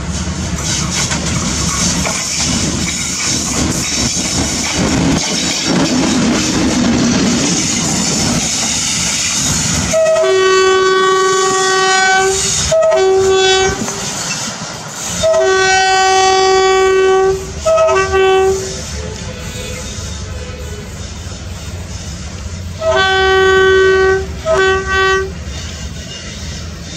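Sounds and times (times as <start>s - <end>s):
locomotive engine and wheels rumbling: 0.0s - 26.9s
train air horn blasts: 9.9s - 14.1s, 15.1s - 26.9s.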